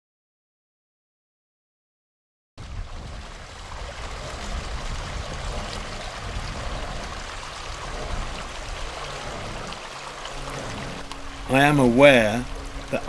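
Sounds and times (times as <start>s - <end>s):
low unsteady rumble: 2.6s - 13.0s
water pouring from hose: 2.6s - 13.0s.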